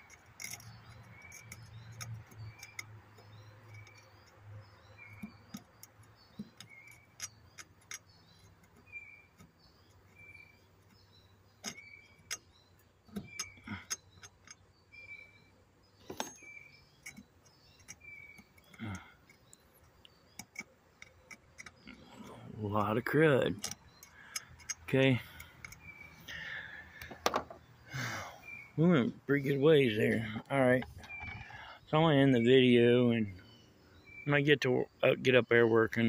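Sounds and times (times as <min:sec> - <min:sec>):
nail scraping metal gear teeth: 0:00.0 - 0:11.0, 0:23.4 - 0:27.1
bird chirp: 0:00.0 - 0:36.0.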